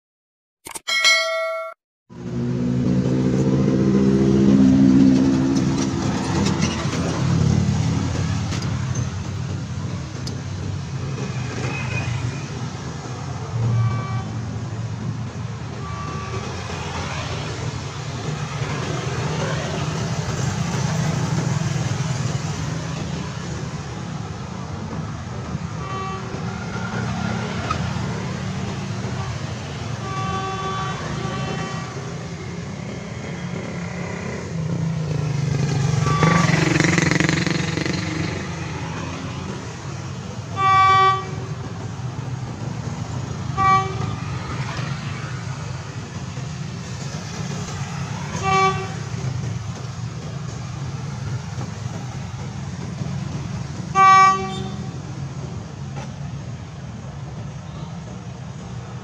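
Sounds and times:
road traffic: 0.8 - 59.0
vehicle passing loudly: 2.1 - 6.3, 32.0 - 39.9
vehicle horn toots: 13.7 - 14.4, 15.8 - 16.5, 30.0 - 32.1, 36.0 - 36.6, 40.6 - 41.5, 43.6 - 44.2, 48.4 - 49.0, 53.9 - 54.9.

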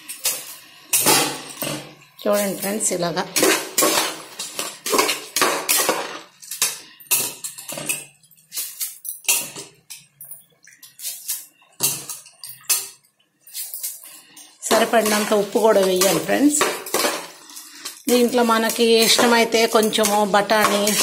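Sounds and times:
ladle scraping metal pot: 0.0 - 9.7, 13.5 - 21.0.

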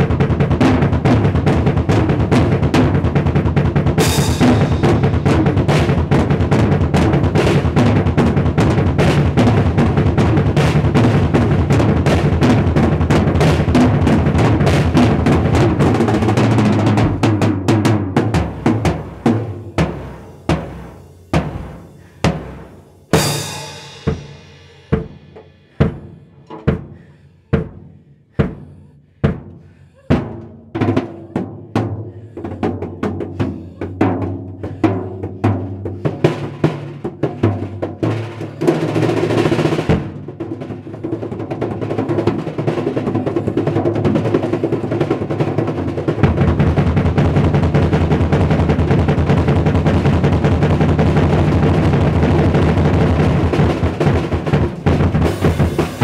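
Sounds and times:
drum kit hits and rolls: 0.0 - 27.0, 32.8 - 56.0
hands drumming on drum heads: 0.0 - 56.0
cymbal crash: 19.0 - 25.8, 55.2 - 56.0.

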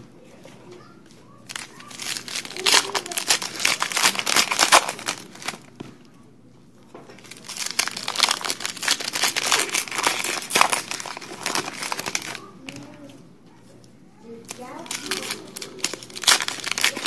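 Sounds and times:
foil wrapper crinkling and tearing: 1.5 - 5.8, 7.2 - 12.8, 14.4 - 17.0.

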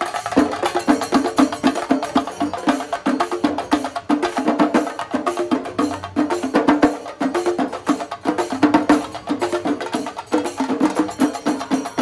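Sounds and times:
drums beaten with sticks: 0.0 - 12.0.

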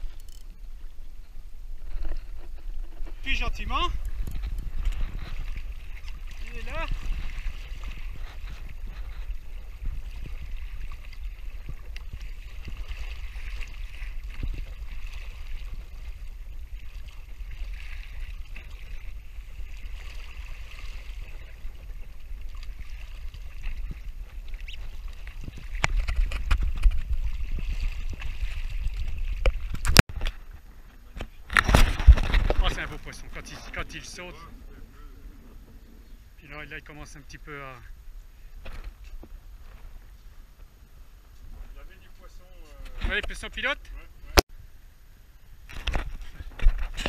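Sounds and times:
wind rumble on microphone: 0.0 - 30.6
water splashing against hull: 0.0 - 44.7.

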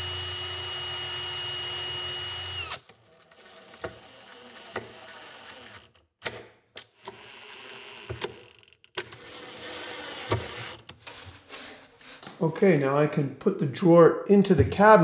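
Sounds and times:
cordless drill whining: 0.0 - 5.9, 9.2 - 10.8.

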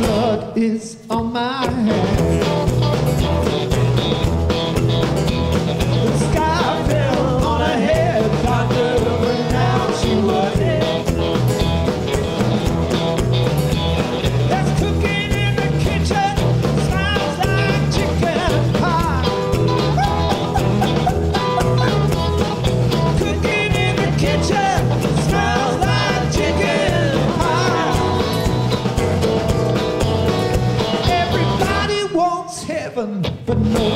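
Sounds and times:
man singing: 0.0 - 2.6, 5.9 - 11.4, 14.4 - 19.5, 22.9 - 28.5, 30.9 - 33.9
live blues-rock band playing: 0.0 - 33.9.

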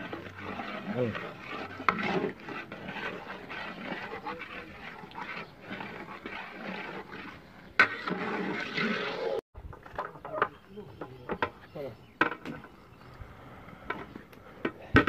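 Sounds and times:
ladle scraping cooking pot: 0.0 - 9.4.

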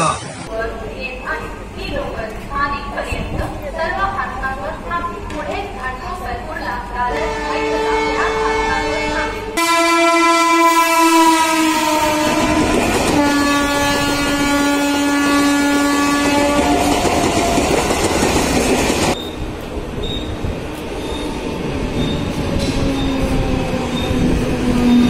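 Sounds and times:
train rumble and clatter: 0.7 - 9.6, 12.0 - 25.0
train horn blast: 7.1 - 17.0.

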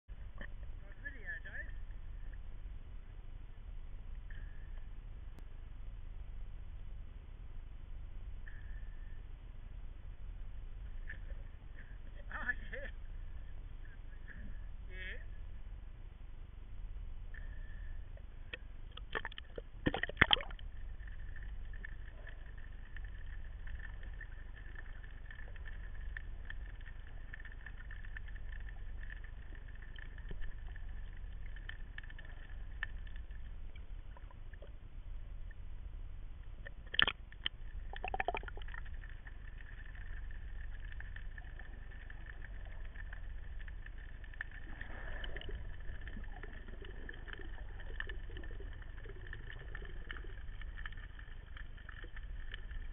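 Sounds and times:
underwater low rumble: 0.0 - 52.9
faint crackling clicks: 17.3 - 35.7, 36.4 - 52.9.

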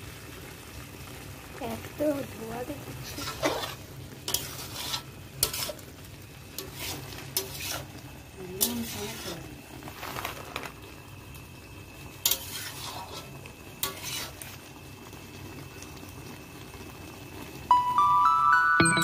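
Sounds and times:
faint sizzle: 0.0 - 19.0
spatula scraping metal pan: 3.0 - 5.8, 6.6 - 8.0, 8.6 - 9.4, 12.2 - 14.4
background music: 17.7 - 19.0.

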